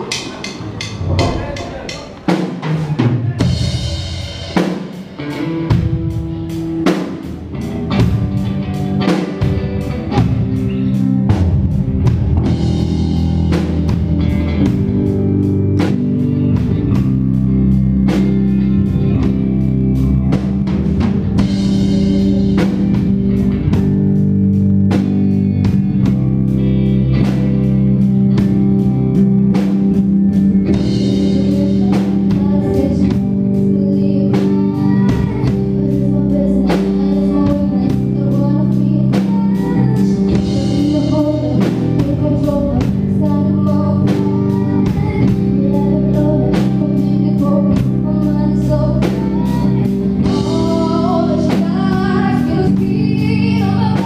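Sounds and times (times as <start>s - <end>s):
drum hits: 0.0s - 7.2s
electric guitar chords: 0.0s - 54.0s
live rock band playing: 0.0s - 54.0s.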